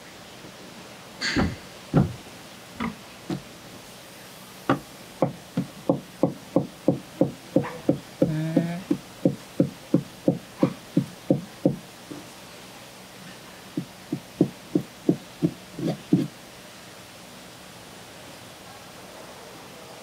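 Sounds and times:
single knocks: 0:01.2 - 0:03.5.

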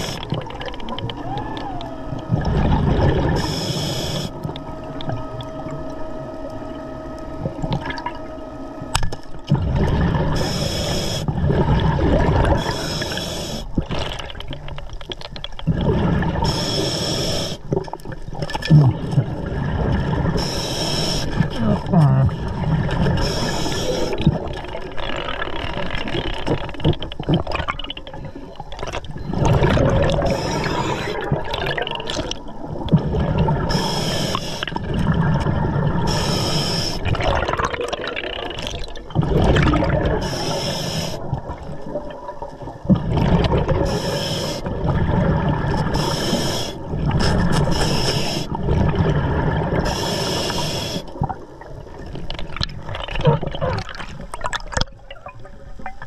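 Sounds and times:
exhaled bubbles gurgling: 0:00.0 - 0:56.0
regulator inhale hiss: 0:03.3 - 0:04.5, 0:10.3 - 0:11.3, 0:12.5 - 0:13.8, 0:16.4 - 0:17.7, 0:20.4 - 0:21.6, 0:23.2 - 0:24.2, 0:30.2 - 0:31.2, 0:33.7 - 0:34.8, 0:36.0 - 0:37.2, 0:40.2 - 0:41.3, 0:43.8 - 0:44.7, 0:45.8 - 0:48.6, 0:49.8 - 0:51.2.

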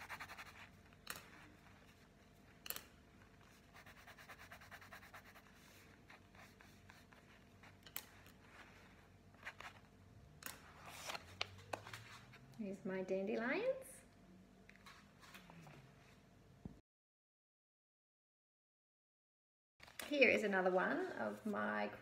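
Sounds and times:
pencil scratching on paper: 0:00.0 - 0:00.8, 0:03.4 - 0:07.8.

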